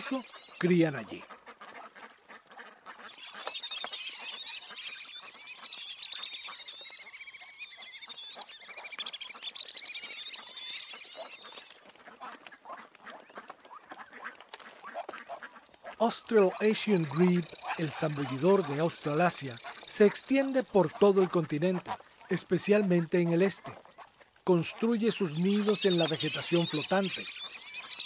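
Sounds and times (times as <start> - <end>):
ducklings peeping: 0.0 - 28.0.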